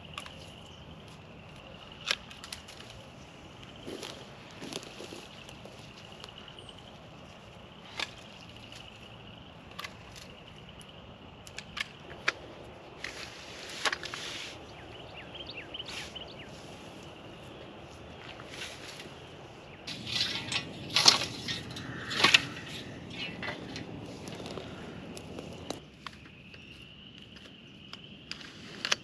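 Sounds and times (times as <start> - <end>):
woody stems cracking: 0.0 - 6.4, 7.8 - 14.2, 19.9 - 26.3.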